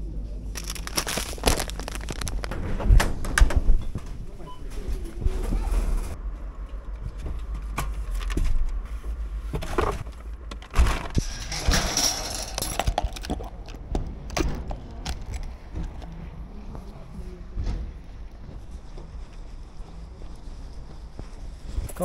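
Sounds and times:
shopping trolley rattling and clanking: 0.6s - 4.3s, 9.6s - 13.5s.

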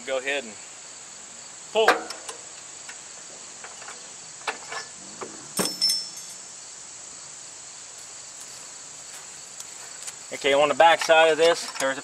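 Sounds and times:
crickets chirring: 0.0s - 12.0s
metal knocks: 3.7s - 6.4s
ringing metal clink: 5.6s - 6.5s.

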